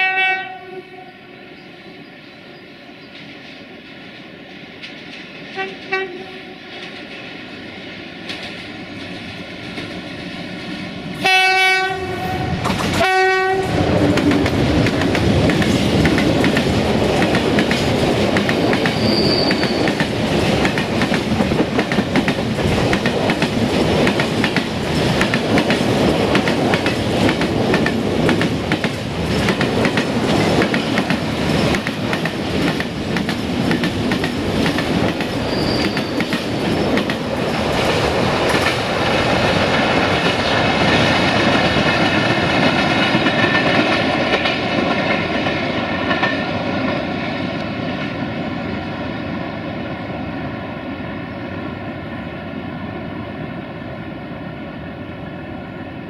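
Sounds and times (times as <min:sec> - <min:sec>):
locomotive horn blasts: 0:00.0 - 0:01.2, 0:05.6 - 0:06.5, 0:11.2 - 0:13.8
train wagons clattering over rail joints: 0:08.2 - 0:10.8
high wheel squeals: 0:18.9 - 0:19.9, 0:35.4 - 0:36.3.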